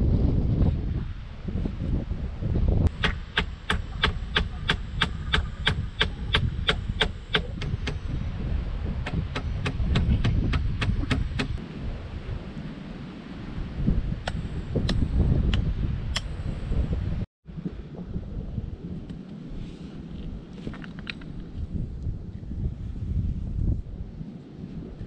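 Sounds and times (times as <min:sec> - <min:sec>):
hammer striking nail: 0:03.0 - 0:08.0, 0:09.1 - 0:11.6.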